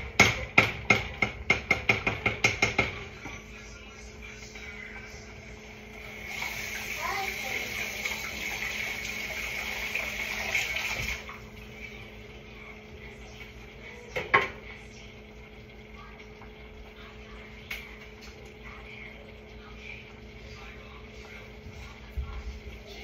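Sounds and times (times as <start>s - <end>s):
low steady hum: 2.8s - 23.0s
sink tap running: 5.9s - 12.1s.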